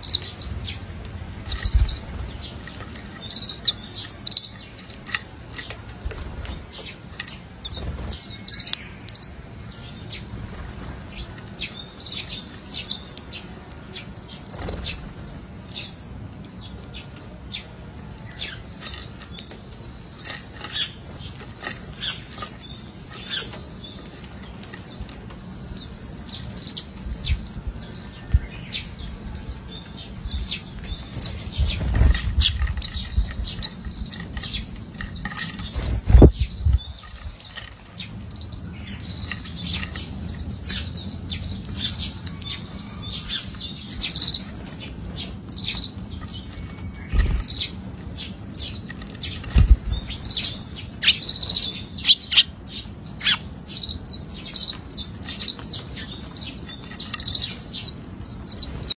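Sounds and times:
beak tapping on seeds: 0.0 - 9.4, 15.8 - 27.5, 28.3 - 52.5, 54.3 - 58.9
sparrow chirping: 0.0 - 59.0.

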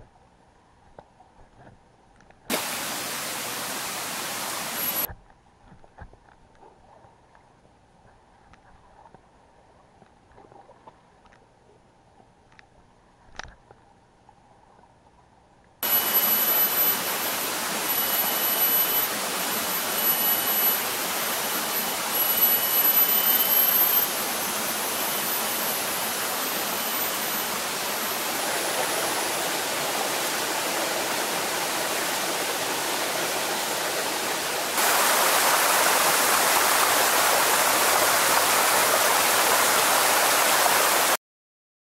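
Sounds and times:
rushing river water: 2.5 - 5.1, 15.8 - 41.2
high thin tones: 15.8 - 40.2.

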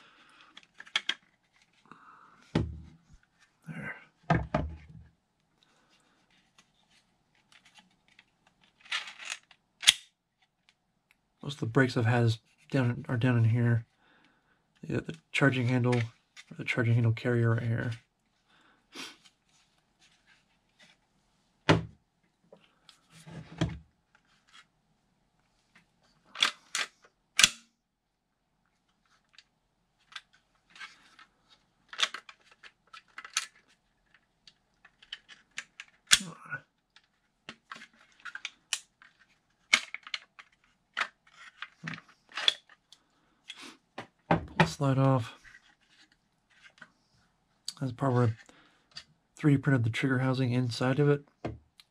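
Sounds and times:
plastic pistol parts clicking: 8.8 - 10.1, 26.4 - 27.7, 39.7 - 42.8.

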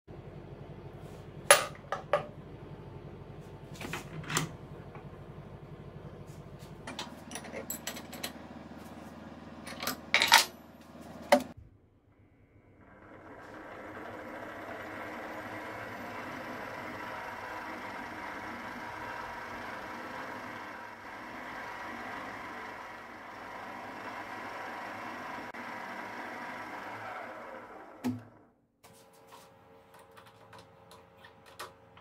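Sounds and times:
milling machine motor running: 12.8 - 28.0.

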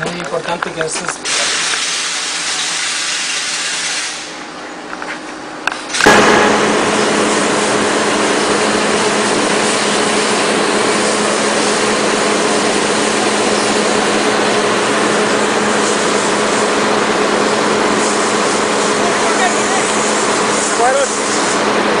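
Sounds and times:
machine running with low hum: 4.2 - 22.0.

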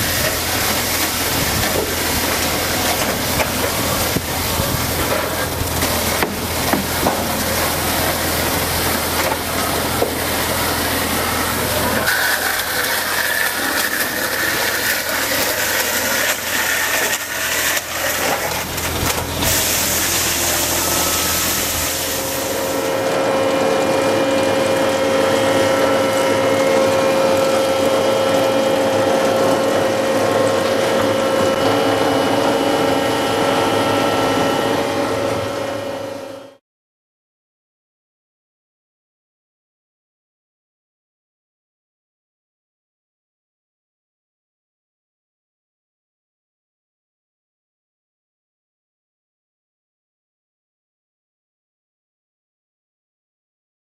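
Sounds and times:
dowel mill running: 0.0 - 36.6.

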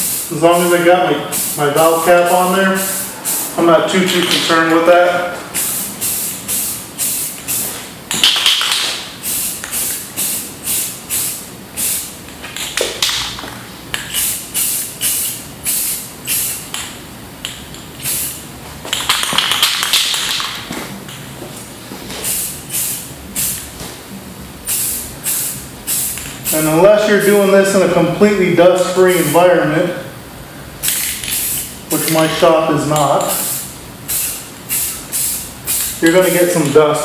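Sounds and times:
spray paint can hissing: 0.0 - 3.5, 5.5 - 13.1, 14.0 - 16.8, 18.0 - 18.4, 22.2 - 23.7, 24.6 - 27.3, 30.8 - 32.2, 33.2 - 36.4.

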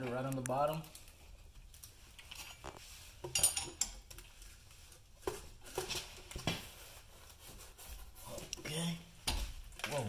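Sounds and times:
metal tools clinking on bolts: 3.3 - 4.0.

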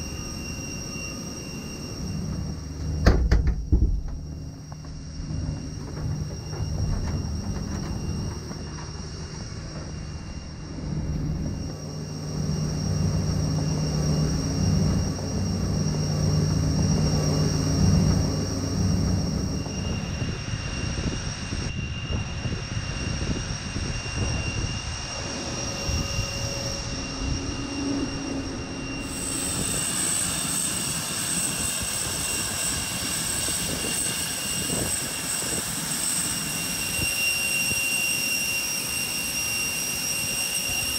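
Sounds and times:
low hum: 0.0 - 30.4
jet aircraft whine and rumble: 0.0 - 40.9.

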